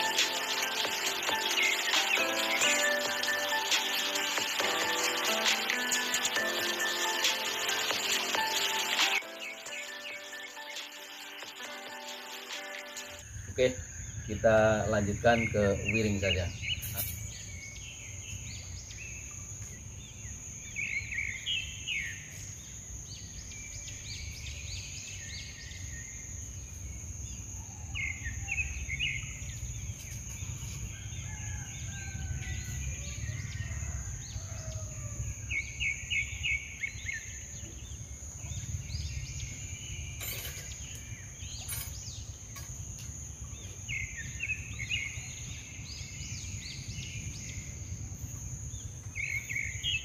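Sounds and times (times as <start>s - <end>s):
small birds chirping: 0.0s - 26.9s.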